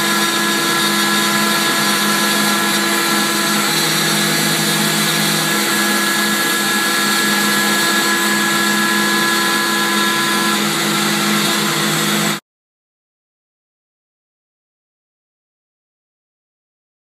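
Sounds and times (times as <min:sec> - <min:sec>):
low motor hum: 0:00.0 - 0:12.4
router spindle whine: 0:00.0 - 0:12.4.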